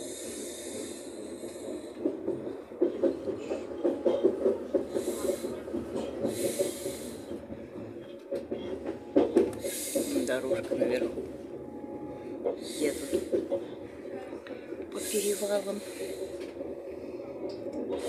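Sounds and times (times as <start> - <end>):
hiss: 0.0 - 2.1, 4.9 - 5.6, 6.2 - 7.3, 9.6 - 10.3
train wheels rumbling on rail: 0.0 - 18.0.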